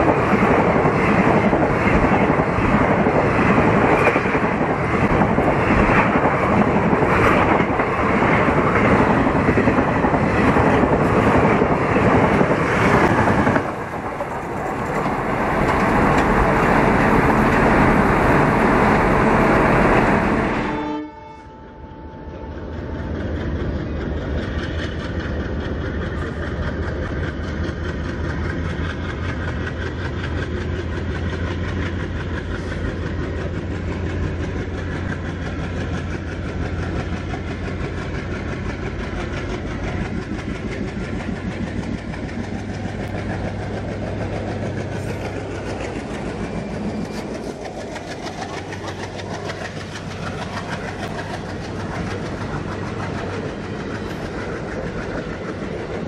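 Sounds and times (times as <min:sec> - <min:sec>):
train wheel clatter: 0:00.0 - 0:20.5, 0:23.1 - 0:56.0
diesel locomotive engine: 0:00.0 - 0:56.0.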